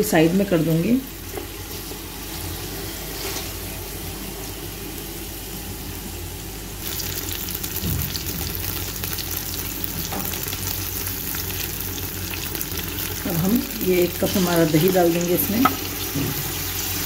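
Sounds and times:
chicken frying in oil: 0:06.8 - 0:17.0.

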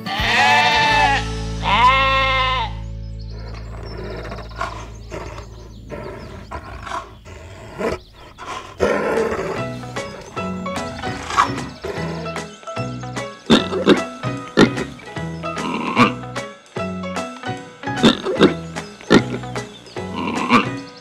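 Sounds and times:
sheep bleating: 0:00.0 - 0:05.4
background music: 0:00.0 - 0:21.0.

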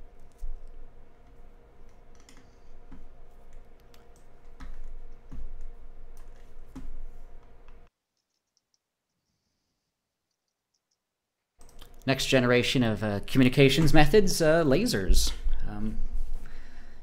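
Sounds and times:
low electrical hum: 0:00.0 - 0:08.7, 0:11.6 - 0:17.0
mouse and keyboard clicks: 0:01.8 - 0:05.4.

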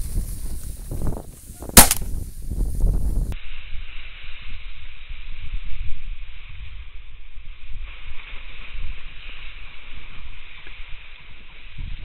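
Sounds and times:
wind buffeting microphone: 0:00.0 - 0:03.4
dry grass rustling underfoot: 0:00.0 - 0:12.0.

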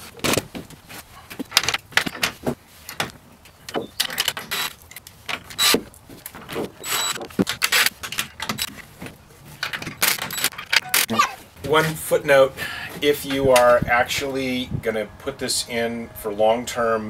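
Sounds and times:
cordless drill whirring: 0:05.6 - 0:05.8, 0:06.8 - 0:07.2.

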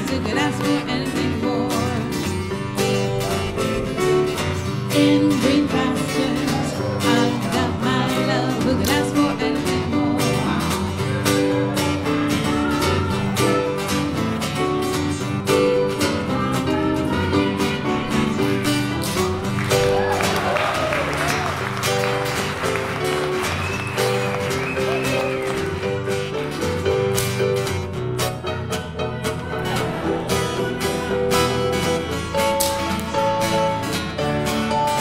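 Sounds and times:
strummed acoustic guitar: 0:00.0 - 0:35.0.

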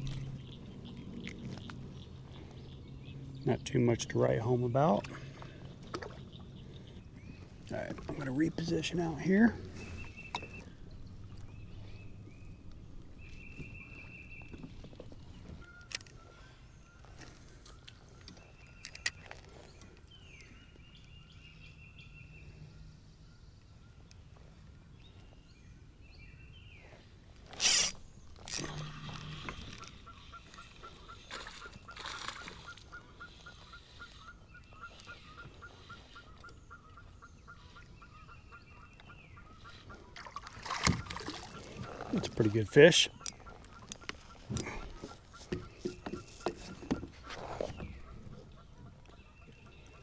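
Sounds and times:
bird trilled calls: 0:27.6 - 0:50.0.

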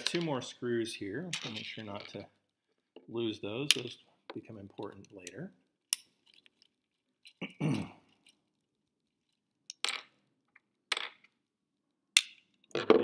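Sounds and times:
tiny metal screws handled: 0:04.8 - 0:07.4.

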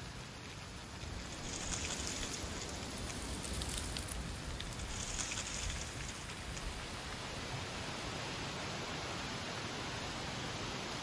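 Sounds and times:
dry leaves rustling: 0:00.0 - 0:07.4
low rumble of wind: 0:00.0 - 0:11.0.

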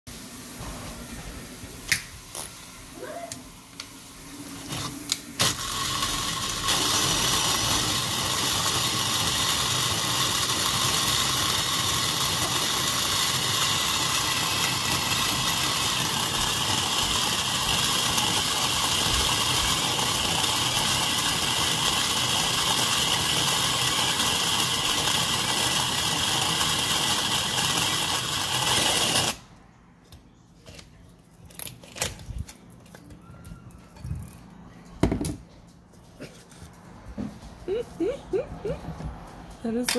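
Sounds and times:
drill driving coffee grinder: 0:04.7 - 0:29.4.

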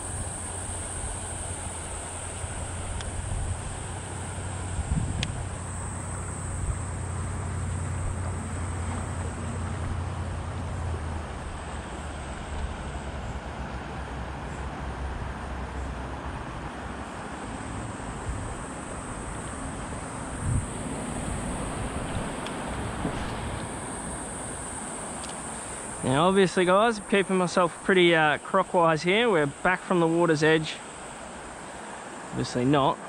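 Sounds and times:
wind buffeting microphone: 0:00.0 - 0:10.4, 0:18.2 - 0:25.1.

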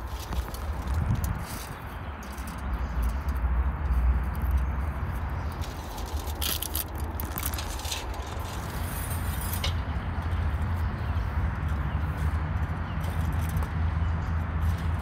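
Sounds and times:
light rustles and clinks: 0:00.0 - 0:03.5, 0:04.2 - 0:10.4
foil crinkling: 0:05.6 - 0:09.1.

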